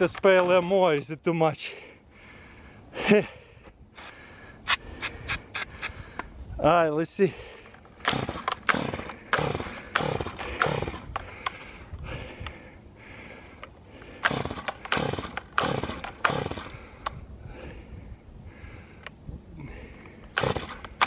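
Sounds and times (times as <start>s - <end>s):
chainsaw recoil starter pulls: 7.7s - 11.6s, 14.0s - 16.8s, 20.2s - 21.0s
engine turning over: 8.0s - 11.2s, 14.2s - 16.8s, 20.3s - 21.0s.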